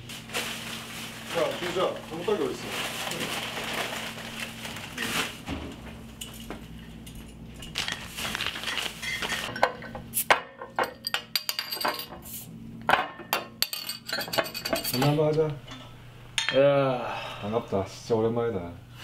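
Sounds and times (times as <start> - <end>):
glass bottles clinking on glass: 12.9 - 15.2.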